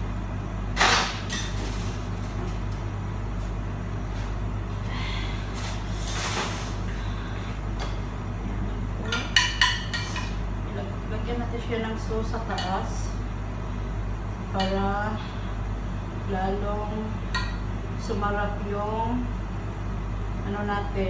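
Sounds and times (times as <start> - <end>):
dishes clattering on a table: 9.1 - 10.4.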